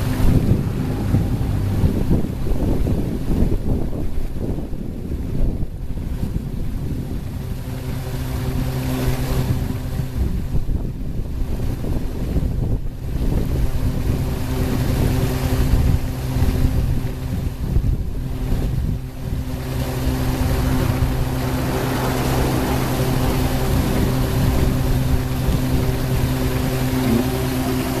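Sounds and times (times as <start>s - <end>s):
motor humming: 0.0s - 28.0s
water splashing and churning: 0.0s - 28.0s.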